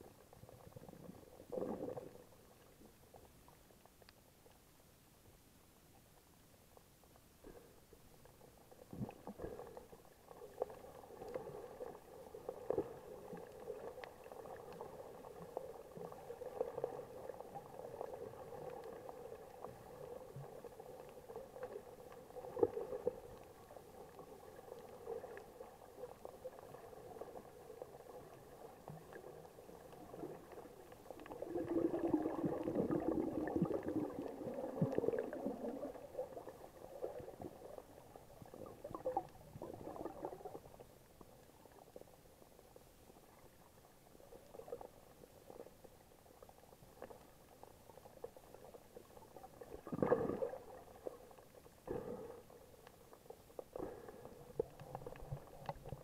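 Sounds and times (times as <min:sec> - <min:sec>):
muffled underwater bubbling: 0:00.0 - 0:02.9, 0:10.5 - 0:41.9, 0:48.4 - 0:52.8, 0:53.7 - 0:56.0.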